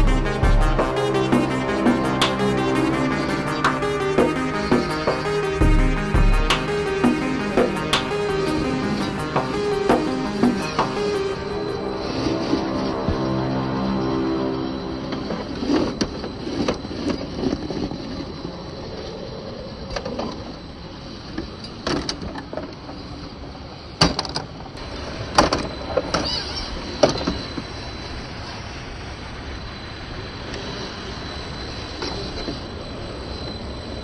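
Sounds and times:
background music: 0:00.0 - 0:16.7.

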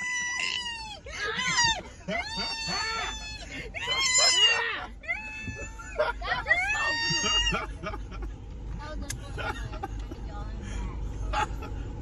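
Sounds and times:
woman screaming: 0:00.0 - 0:07.7.

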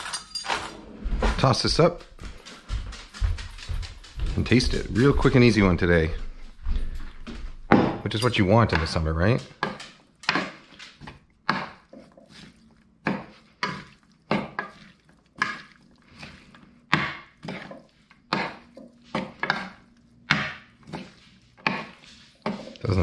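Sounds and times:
salad tossed wet rustling: 0:09.7 - 0:23.0.

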